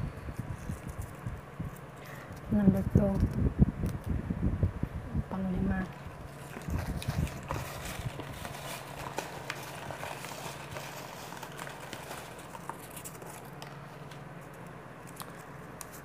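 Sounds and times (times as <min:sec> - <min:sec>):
steady low hum: 0:00.0 - 0:16.0
paper slips tumbling in plastic tub: 0:06.3 - 0:14.2.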